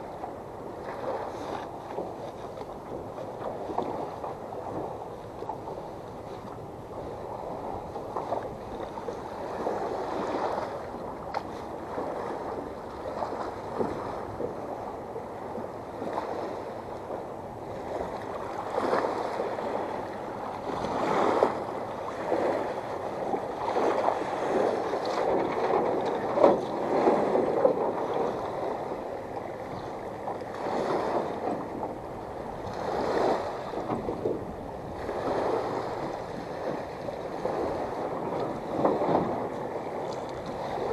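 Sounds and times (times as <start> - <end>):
waves splashing on rocky shore: 9.2 - 14.6, 18.7 - 29.0, 30.4 - 40.9.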